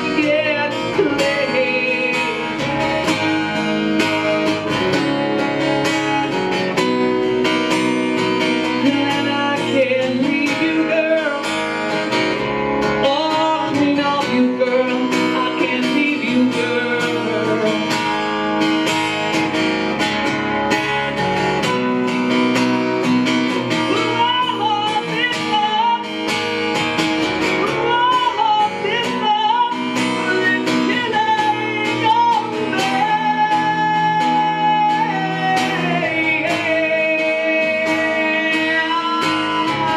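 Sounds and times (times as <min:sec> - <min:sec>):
man singing: 0:00.0 - 0:03.4, 0:08.6 - 0:11.7, 0:12.9 - 0:18.1, 0:23.7 - 0:26.1, 0:27.6 - 0:39.9
acoustic guitar strumming: 0:00.0 - 0:39.9.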